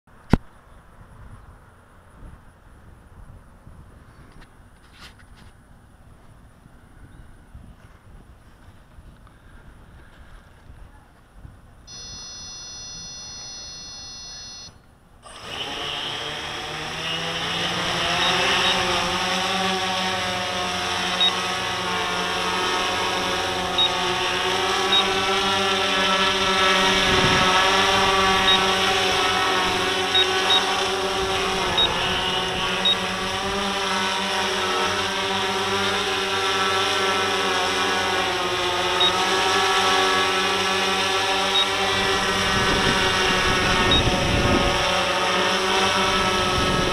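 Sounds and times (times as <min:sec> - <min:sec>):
drone motors and propellers humming: 0:00.2 - 0:46.9
held electronic beep: 0:11.9 - 0:14.8, 0:18.2 - 0:18.9, 0:24.9 - 0:25.2, 0:28.4 - 0:28.8, 0:30.1 - 0:30.8, 0:31.8 - 0:32.1.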